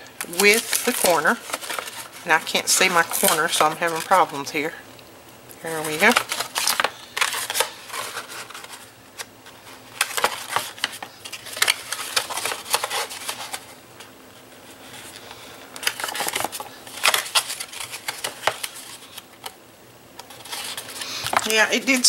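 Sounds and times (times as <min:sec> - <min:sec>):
stiff cardstock rustling and crackling: 0:00.0 - 0:04.8, 0:05.6 - 0:19.6, 0:20.2 - 0:22.0.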